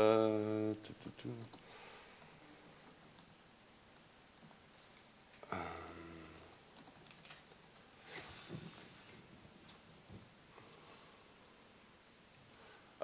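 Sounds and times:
typing on laptop keyboard: 0.7s - 1.6s, 2.2s - 3.4s, 5.7s - 7.9s.

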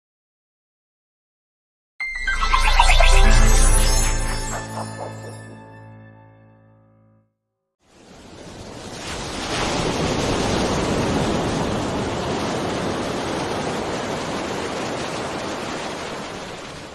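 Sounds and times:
ocean surf washing onto beach: 7.9s - 16.9s.

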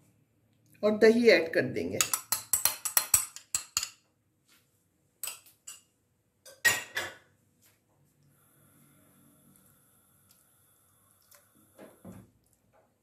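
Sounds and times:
metal spoon clinking glass bowl: 2.0s - 4.0s.

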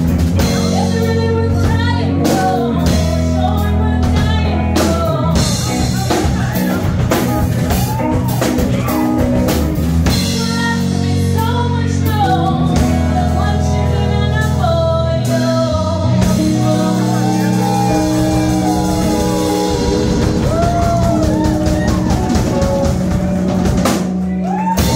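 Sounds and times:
guitars playing: 0.0s - 11.4s, 12.1s - 24.9s
drum kit with cymbals: 0.0s - 13.8s, 15.2s - 24.9s
bass guitar: 0.0s - 24.9s
woman singing: 0.4s - 6.5s, 10.1s - 22.6s.

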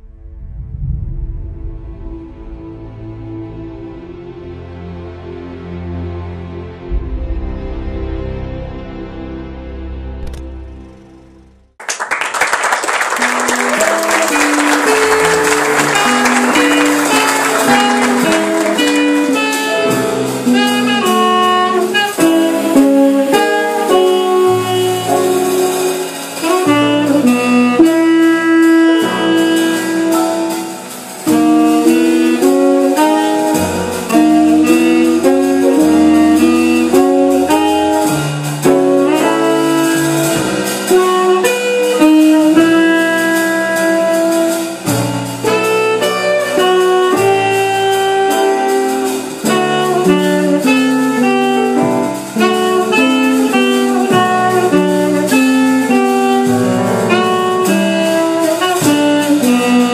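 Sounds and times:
small jazz band playing: 1.7s - 59.9s
saxophone melody: 12.9s - 59.9s.

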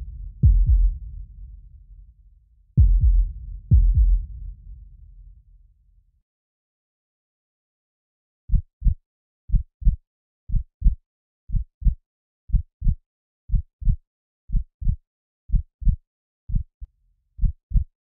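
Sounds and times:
heartbeat thumps: 0.0s - 1.8s, 2.8s - 5.1s.

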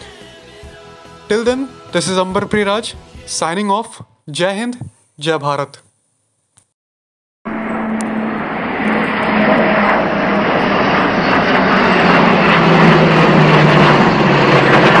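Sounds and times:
jet engines rushing: 7.5s - 15.0s
low hum: 7.5s - 15.0s.

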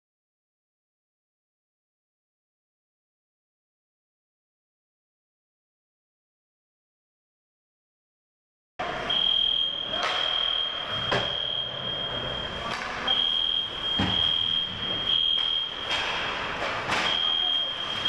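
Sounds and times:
high-pitched electronic alarm tone: 9.1s - 16.4s, 17.0s - 18.0s
clacks of sticks and puck: 9.9s - 11.4s, 12.7s - 13.1s, 15.3s - 17.4s.

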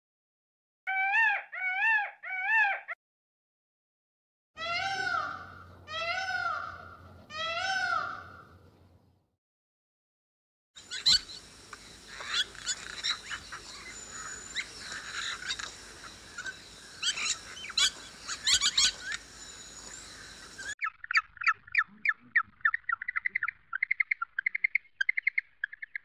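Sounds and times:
thin whistled bird notes: 10.8s - 21.0s
fast repeated bird calls: 10.8s - 26.0s
small birds chirping: 10.8s - 26.0s.

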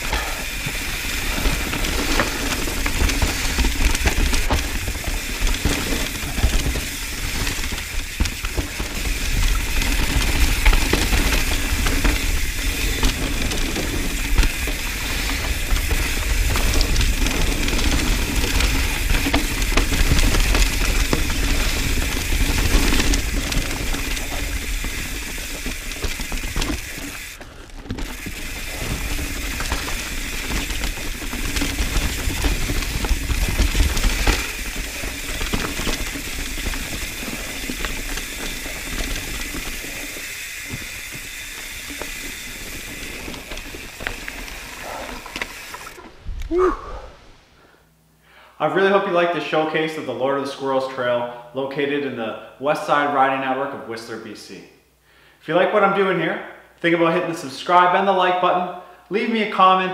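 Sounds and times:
bicycle freehub ratchet buzzing: 0.0s - 46.0s
tyres rolling over dirt: 0.0s - 46.4s.

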